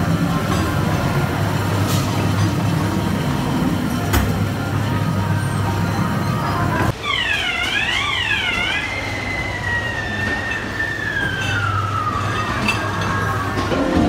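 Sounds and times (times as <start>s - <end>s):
electronic siren-like wail: 6.9s - 13.6s.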